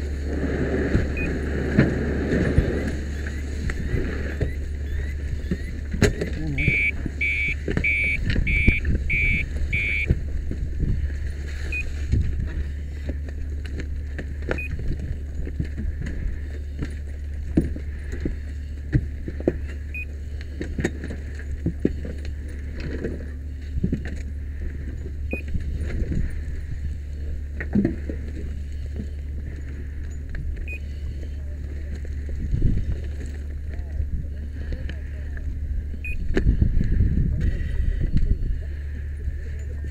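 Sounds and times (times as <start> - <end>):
burned wood and debris clattering: 0.0 - 39.9
steady low hum: 0.0 - 39.9
quick high beeps: 4.3 - 10.1, 36.0 - 36.2.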